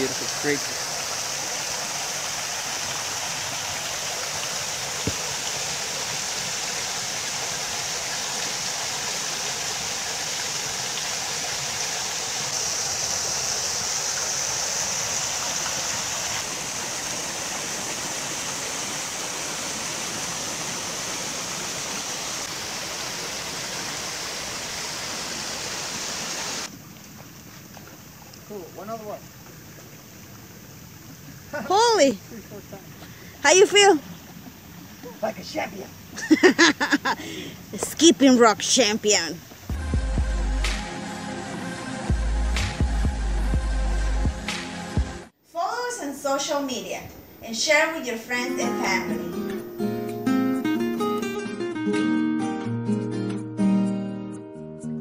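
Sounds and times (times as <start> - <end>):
waterfall splashing into pool: 0.0 - 27.1.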